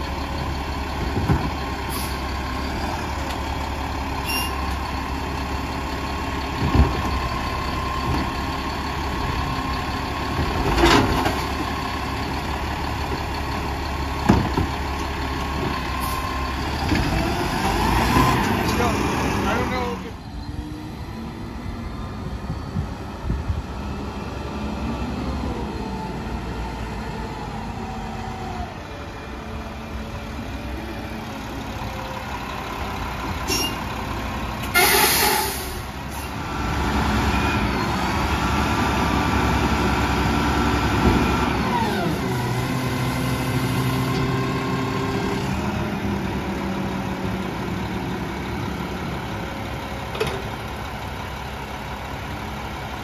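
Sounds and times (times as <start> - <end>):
garbage truck engine: 0.0 - 53.0
air brake hiss: 33.5 - 33.8, 34.7 - 36.3.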